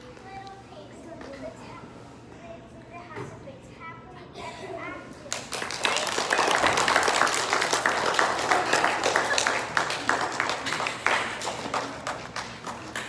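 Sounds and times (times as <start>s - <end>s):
audience clapping: 5.3s - 13.0s.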